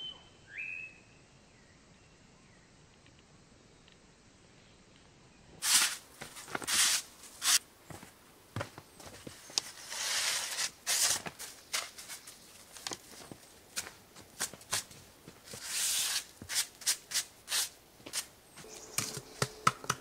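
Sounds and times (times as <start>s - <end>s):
footsteps crunching in snow: 5.6s - 17.0s.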